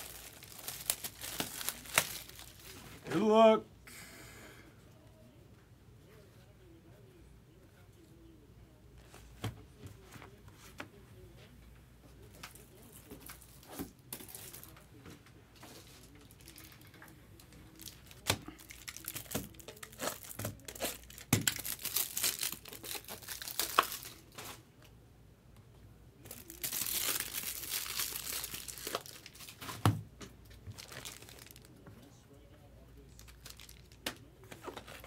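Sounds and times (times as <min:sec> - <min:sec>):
wrappers crinkling and tearing: 0:00.0 - 0:03.0, 0:12.3 - 0:14.9, 0:15.6 - 0:24.6, 0:26.2 - 0:29.8, 0:30.6 - 0:31.8, 0:33.1 - 0:35.0.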